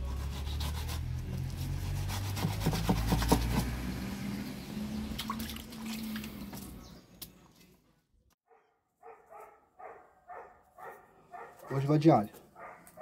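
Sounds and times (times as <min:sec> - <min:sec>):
knife sawing through fish: 0:00.0 - 0:03.6.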